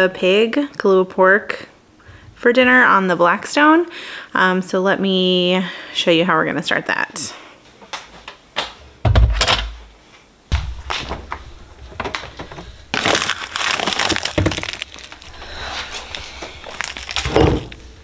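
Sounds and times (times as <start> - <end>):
frozen plastic bag crackling: 11.4 - 18.0.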